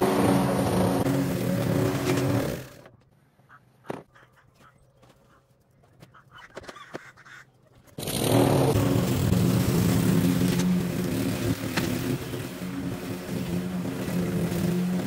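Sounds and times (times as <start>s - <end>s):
lawnmower engine cutting grass: 0.0s - 2.9s, 8.0s - 15.0s.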